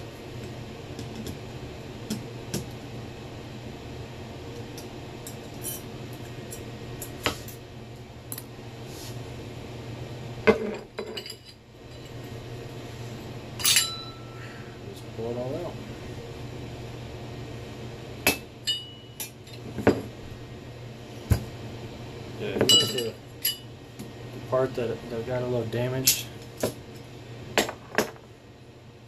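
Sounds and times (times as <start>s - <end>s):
steady low hum: 0.0s - 29.0s.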